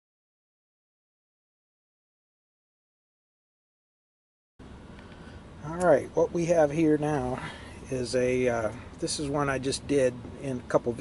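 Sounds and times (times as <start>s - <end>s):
steady background hiss: 4.6s - 11.0s.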